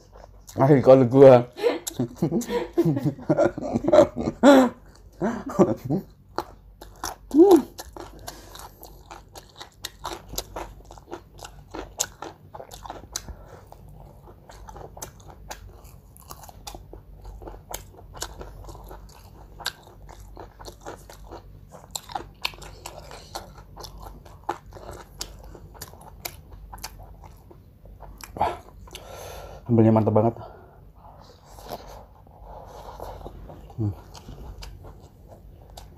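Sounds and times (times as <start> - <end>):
crunching and chewing food: 6.0 - 29.2, 31.0 - 35.9.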